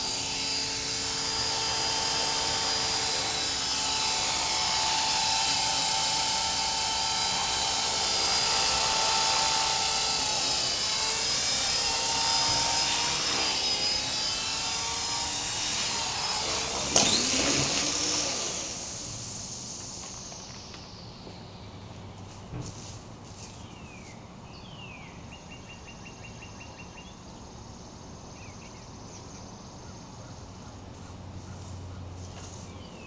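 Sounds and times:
rc helicopter motor whining: 0.0s - 21.6s.

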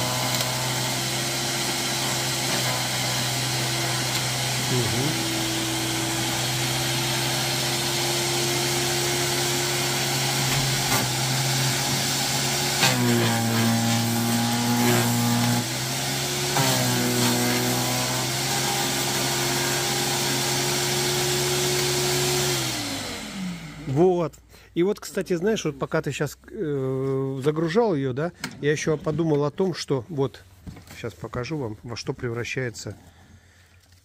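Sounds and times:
electric garden shredder running: 0.0s - 24.0s
shredder cutting branch: 0.0s - 24.0s.

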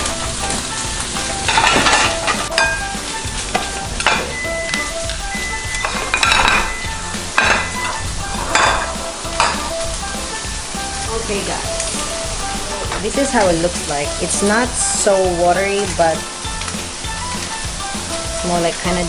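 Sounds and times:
food sizzling in a frying pan: 0.0s - 19.0s
soft background music: 0.0s - 19.0s
ceramic plates knocking and scraping: 1.5s - 2.8s, 5.8s - 6.8s, 7.4s - 9.6s.

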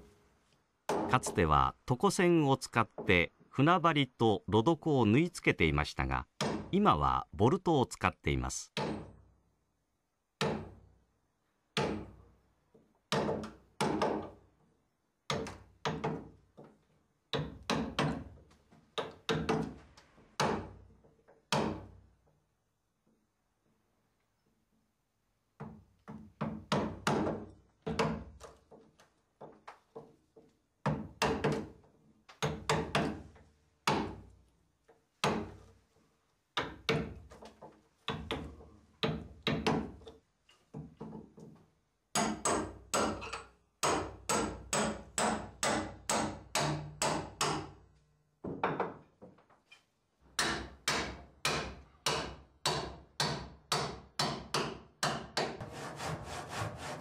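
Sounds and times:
hammer striking a chisel in wood: 6.4s - 6.7s, 8.8s - 9.2s, 11.8s - 12.2s, 12.8s - 14.4s, 17.3s - 18.3s, 21.5s - 21.9s, 30.8s - 31.8s, 32.4s - 34.2s, 36.6s - 41.2s, 42.1s - 47.8s, 50.4s - 55.7s.

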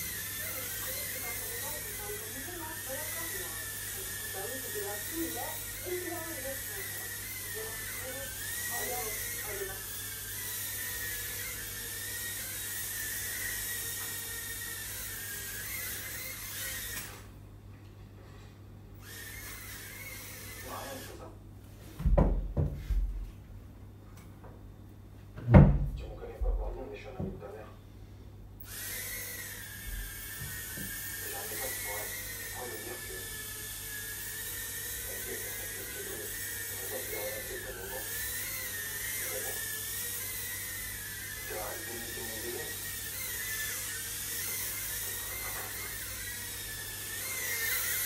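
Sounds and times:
drone motors whining: 0.0s - 17.4s, 19.0s - 21.3s, 28.6s - 48.0s.

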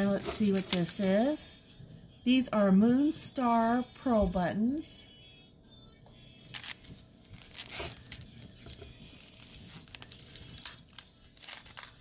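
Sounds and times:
packaging rustling and crinkling: 0.0s - 1.1s, 6.5s - 12.0s.

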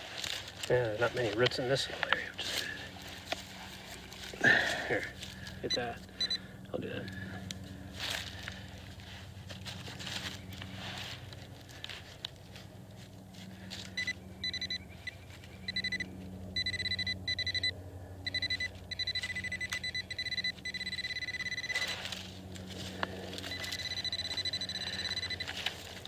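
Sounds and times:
high electronic alert tone: 16.6s - 17.7s, 18.3s - 21.9s.

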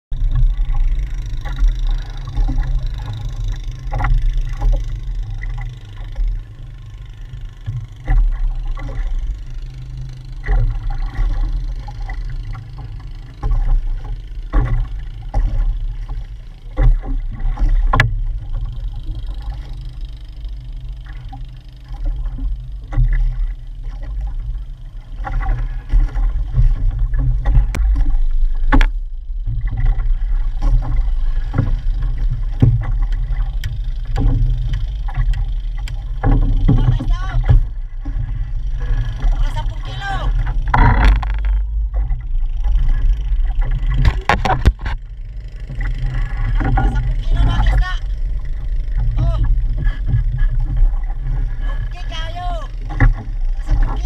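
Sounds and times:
wind and water rumble: 0.1s - 54.0s
knocks against boat: 14.5s - 18.3s, 25.2s - 38.2s, 40.4s - 42.2s, 43.6s - 45.1s, 52.9s - 54.0s.

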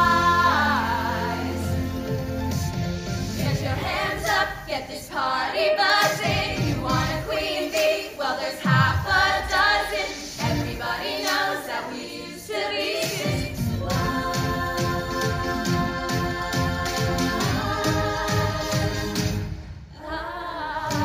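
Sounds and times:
girls singing into microphones: 0.0s - 2.0s, 3.4s - 21.0s
recorded backing music: 0.0s - 21.0s.

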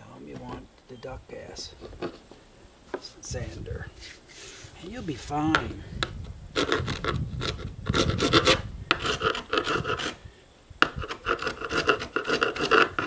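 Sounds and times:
chisel scraping epoxy: 6.6s - 10.2s, 10.8s - 13.0s.

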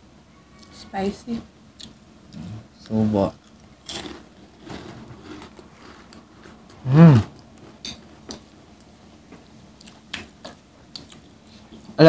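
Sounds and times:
woman chewing food: 1.8s - 12.0s
woman humming mmm: 6.8s - 7.4s.

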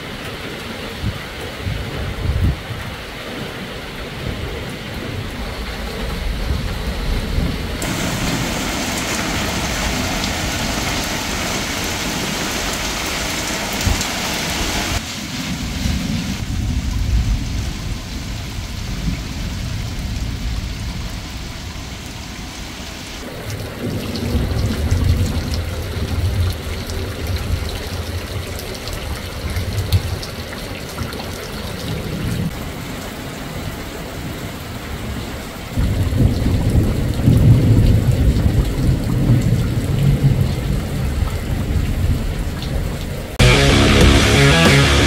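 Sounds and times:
wind buffeting microphone: 1.0s - 12.1s
rain hiss: 2.5s - 45.0s.

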